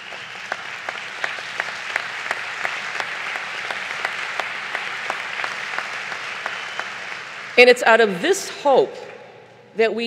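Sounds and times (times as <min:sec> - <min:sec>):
audience applauding: 0:00.0 - 0:07.6.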